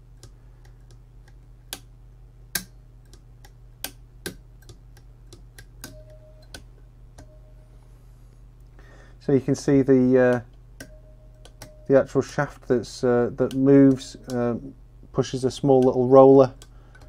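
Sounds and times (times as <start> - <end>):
lever switch clicks: 13.4 - 14.5.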